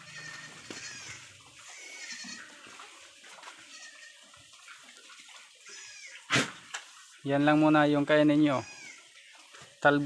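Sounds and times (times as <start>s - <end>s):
rustling leaves: 0.0s - 4.5s.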